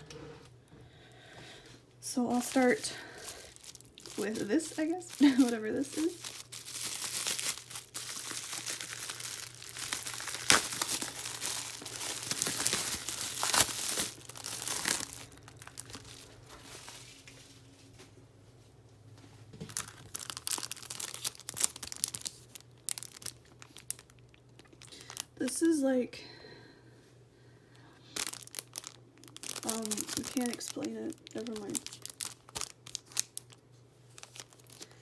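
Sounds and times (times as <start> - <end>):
plastic packaging crinkling: 2.3 - 17.2, 19.6 - 25.7, 28.1 - 35.0.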